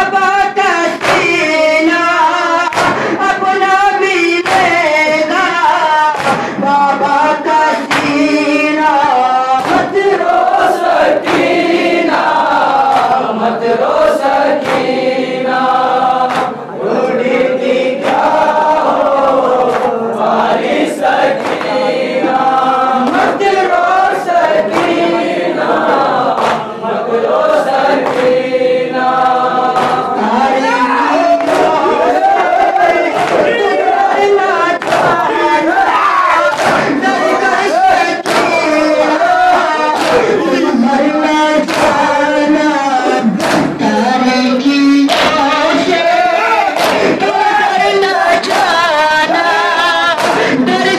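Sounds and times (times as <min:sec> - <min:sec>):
boy chanting into a microphone: 0:00.0 - 0:11.3
group of voices chanting: 0:00.0 - 0:50.9
hands slapping on chests: 0:01.0 - 0:02.0, 0:02.7 - 0:03.4, 0:04.4 - 0:05.5, 0:06.1 - 0:06.7, 0:07.8 - 0:08.3, 0:09.6 - 0:13.3, 0:14.2 - 0:15.0, 0:16.2 - 0:16.6, 0:18.0 - 0:20.0, 0:21.3 - 0:26.7, 0:27.9 - 0:28.4, 0:29.2 - 0:30.2, 0:31.2 - 0:40.4, 0:41.6 - 0:42.2, 0:43.3 - 0:43.8, 0:45.1 - 0:47.4, 0:48.3 - 0:48.8, 0:50.1 - 0:50.8.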